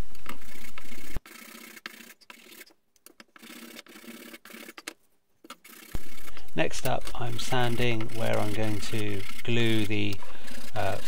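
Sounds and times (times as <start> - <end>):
sandpaper rubbing wood: 7.2 - 11.0.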